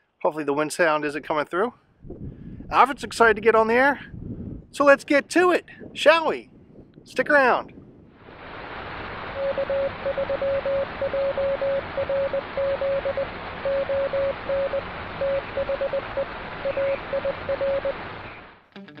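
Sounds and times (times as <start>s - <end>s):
radio static hiss: 8.4s - 18.5s
morse code tones: 9.4s - 18.0s.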